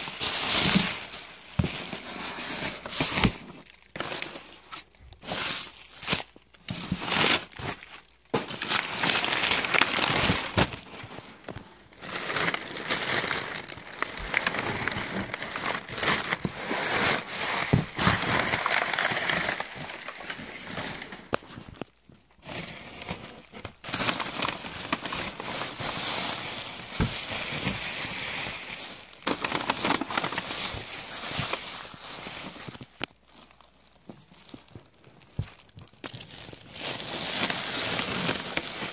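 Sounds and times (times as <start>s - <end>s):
plastic bags and bubble wrap crinkling: 0.0s - 38.9s.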